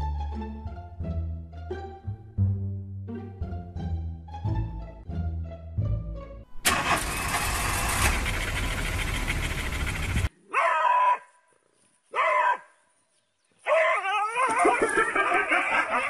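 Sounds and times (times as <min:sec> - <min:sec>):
small dog yelping: 0:10.5 - 0:11.3, 0:12.1 - 0:12.7, 0:13.6 - 0:15.0.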